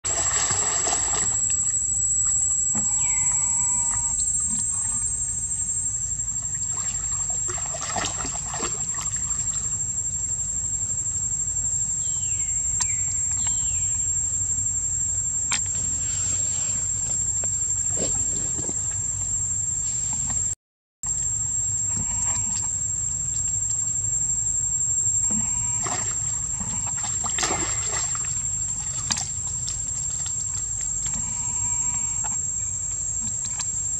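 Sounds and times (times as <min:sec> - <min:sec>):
monkeys splashing in water: 0:00.1 - 0:01.6, 0:26.8 - 0:31.1
high-pitched insect drone: 0:00.1 - 0:33.9.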